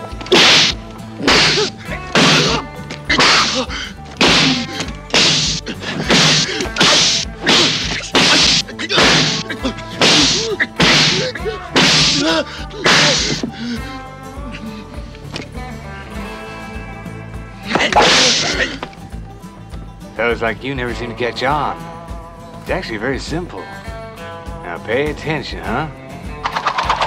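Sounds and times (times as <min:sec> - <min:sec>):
film score music: 0:00.0 - 0:27.0
hand slapping face: 0:00.2 - 0:03.5, 0:04.2 - 0:12.2.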